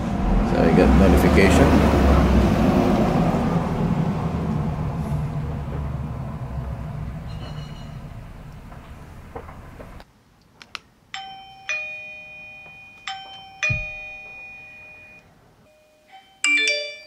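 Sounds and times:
doorbell ding-dong chime: 11.2 - 17.0.

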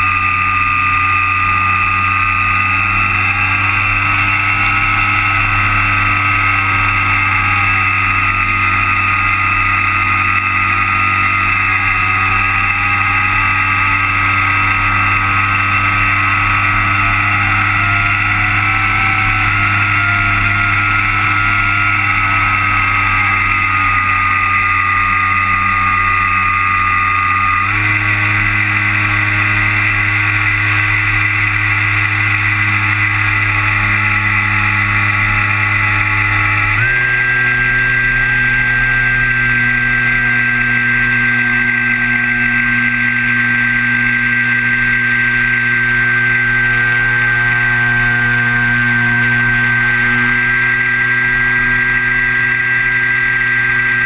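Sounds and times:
model plane motor whine: 0.0 - 54.0.

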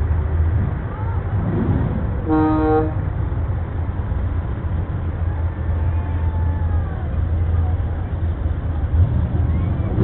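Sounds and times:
truck engine running: 0.0 - 10.0
horn blast: 2.2 - 3.1.

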